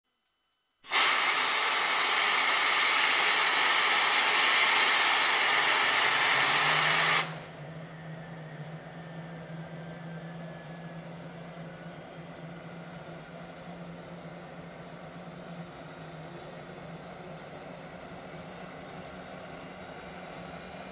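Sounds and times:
jet engine starter hiss: 0.9 - 7.5.

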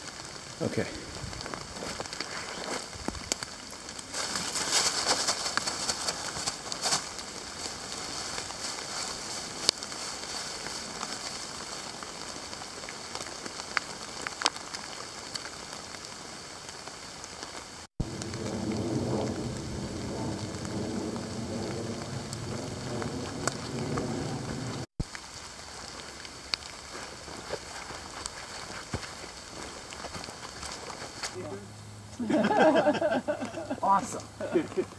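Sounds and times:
footsteps in dry leaves: 1.0 - 13.7, 25.1 - 31.4.

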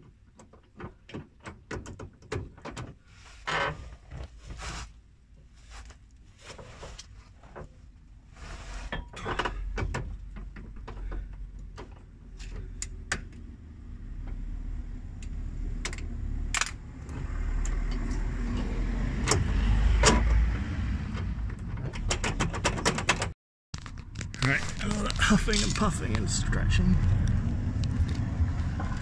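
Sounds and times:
low rumble of handling: 23.8 - 29.0.

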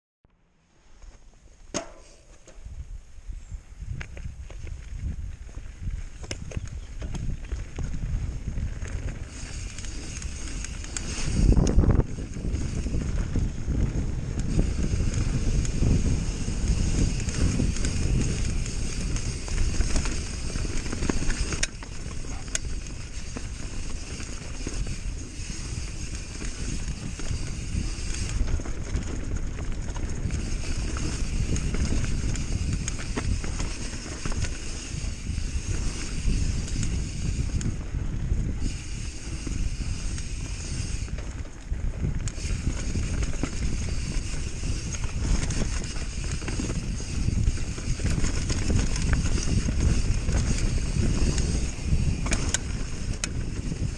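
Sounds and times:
bike knocks and rattles: 1.6 - 2.7, 42.2 - 53.9
wind on microphone: 2.1 - 53.9.

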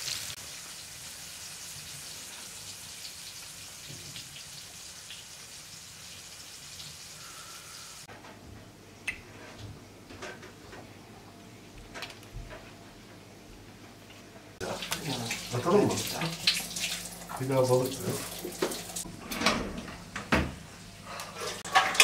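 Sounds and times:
fish sizzling in oil: 0.0 - 8.1, 14.6 - 19.1.

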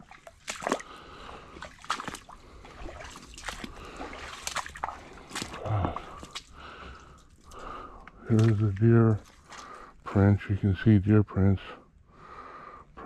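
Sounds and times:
footsteps splashing in water: 0.0 - 10.0.

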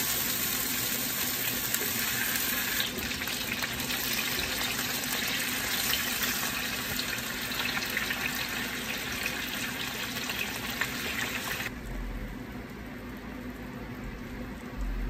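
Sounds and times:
chicken sizzling in pan: 0.0 - 11.7.

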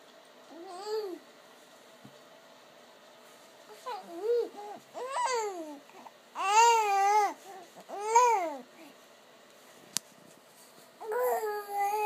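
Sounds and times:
baby babbling: 0.5 - 1.2, 3.7 - 8.7, 11.0 - 12.0.

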